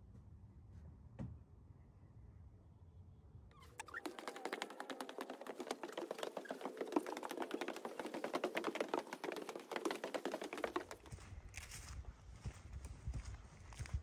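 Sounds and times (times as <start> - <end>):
footsteps on wooden stairs: 3.8 - 11.8.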